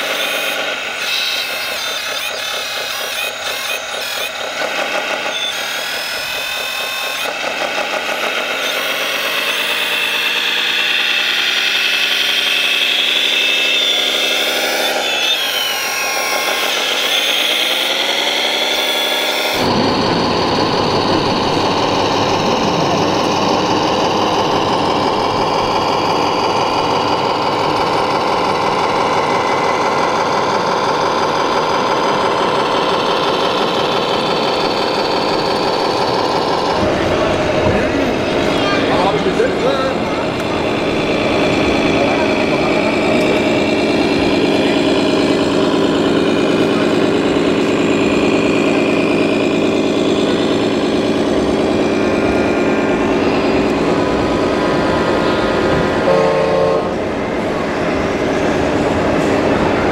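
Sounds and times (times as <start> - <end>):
electric motors and gearing whine: 0.0 - 59.9
low dense steady drone: 15.7 - 59.9.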